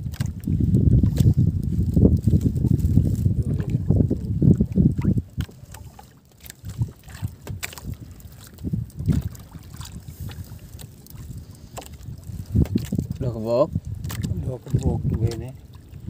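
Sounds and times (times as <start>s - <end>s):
water lapping against boat hull: 0.0s - 16.0s
wind buffeting microphone: 0.0s - 16.0s.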